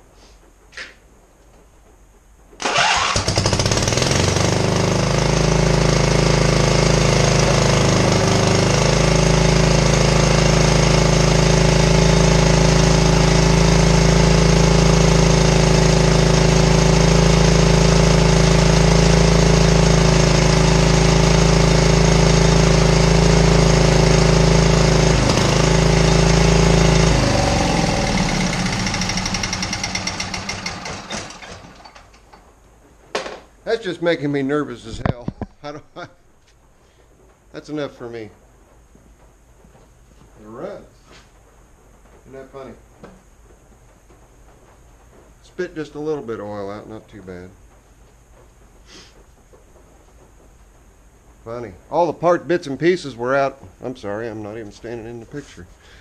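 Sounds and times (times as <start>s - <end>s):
engine running on one cylinder: 2.6s - 32.3s.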